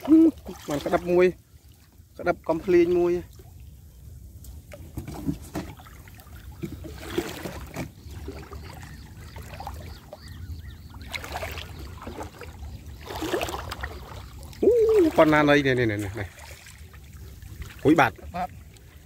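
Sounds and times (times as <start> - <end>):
water sloshing around legs: 0.0 - 3.8, 4.4 - 19.0.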